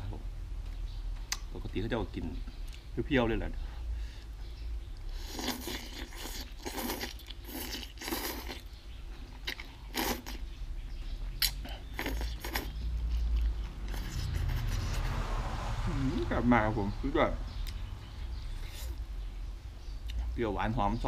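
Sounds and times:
person chewing: 0:05.0 - 0:10.4, 0:11.4 - 0:15.1, 0:18.5 - 0:19.0
person slurping noodles: 0:05.2 - 0:08.7, 0:09.9 - 0:10.4.

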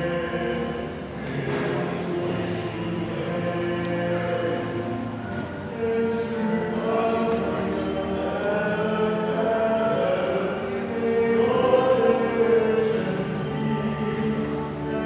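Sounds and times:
choir and congregation singing hymn: 0:00.0 - 0:15.0.

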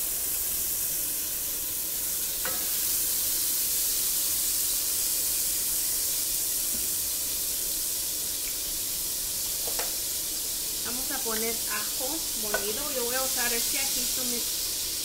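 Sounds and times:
butter sizzling in a saucepan: 0:00.0 - 0:15.0.

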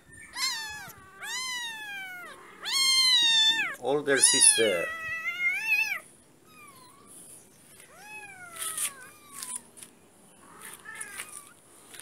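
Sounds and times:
kitten mewing: 0:00.3 - 0:06.0
faint clicks and rustles: 0:07.0 - 0:12.0.

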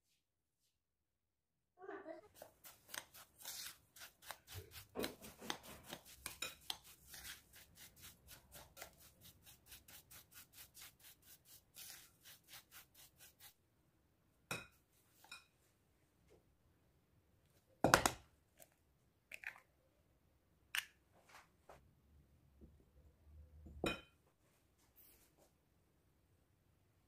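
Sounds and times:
spoon scraping in glass bowl: 0:02.4 - 0:13.5.

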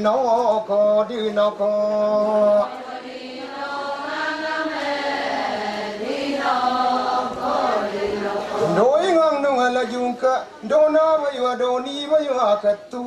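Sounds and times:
group of voices chanting: 0:02.7 - 0:08.8.

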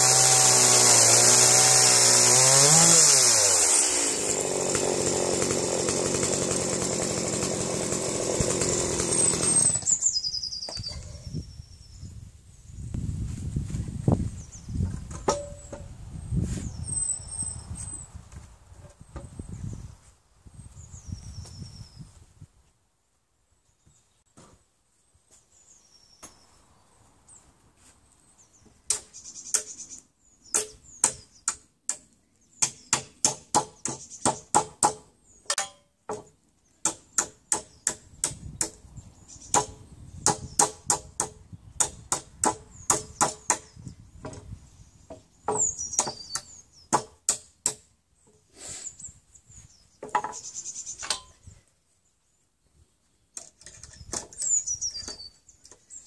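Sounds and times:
nail squeaking as pried out: 0:45.5 - 0:47.1, 0:53.4 - 0:55.8.

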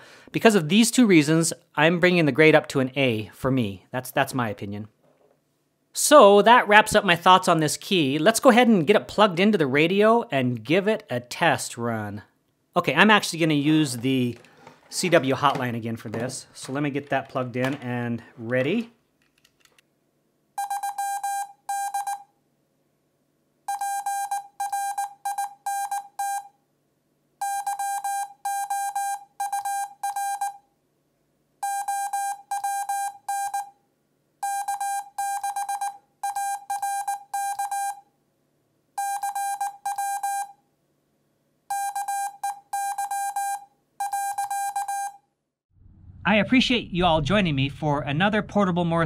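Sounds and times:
morse code beeping: 0:20.6 - 0:22.2, 0:27.4 - 0:30.6, 0:31.6 - 0:33.7, 0:34.4 - 0:38.0, 0:39.0 - 0:40.5, 0:41.7 - 0:45.2.

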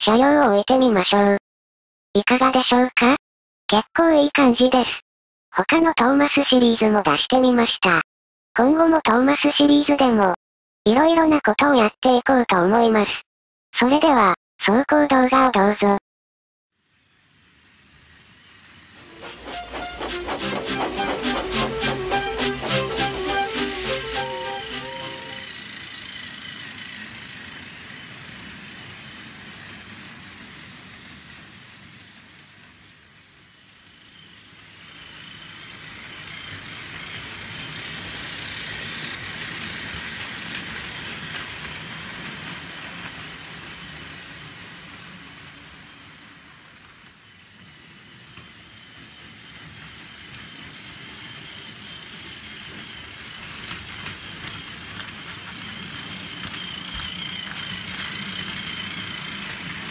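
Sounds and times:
toy train motor whine: 0:16.8 - 0:59.9.

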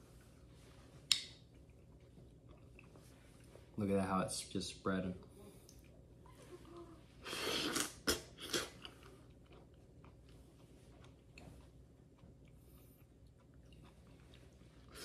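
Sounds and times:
chewing with small clicks: 0:01.0 - 0:03.6, 0:05.5 - 0:06.8, 0:08.5 - 0:15.0.

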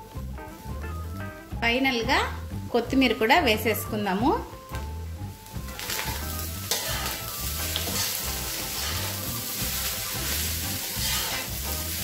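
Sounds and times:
rice sizzling in a pan: 0:00.0 - 0:01.2, 0:04.5 - 0:12.0
metal spatula stirring: 0:05.7 - 0:12.0.

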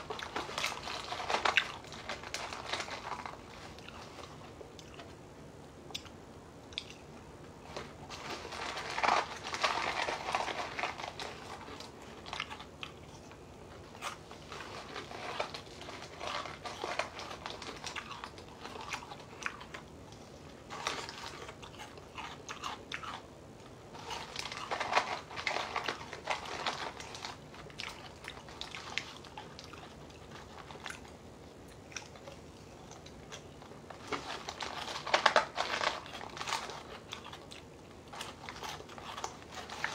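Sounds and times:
chewing and crunching dry cereal: 0:00.0 - 0:05.2, 0:05.8 - 0:39.9.

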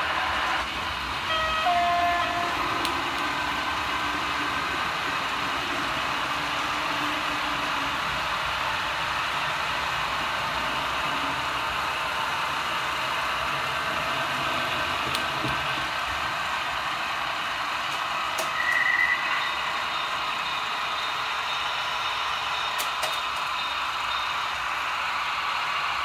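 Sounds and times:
model train whirring on track: 0:00.0 - 0:26.0.

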